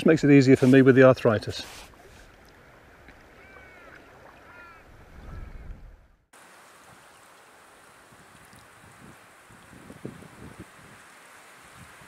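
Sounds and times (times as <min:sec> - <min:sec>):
wind rumble on microphone: 0:04.8 - 0:06.2, 0:08.1 - 0:12.0.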